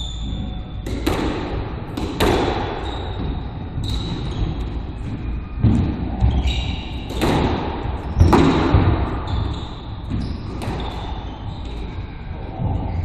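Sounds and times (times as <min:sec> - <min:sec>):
squash ball hits: 0:00.8 - 0:02.8, 0:05.0 - 0:09.5.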